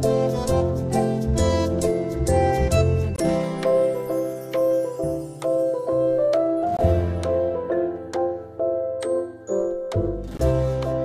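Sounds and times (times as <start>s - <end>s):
gentle instrumental music: 0.0s - 11.0s.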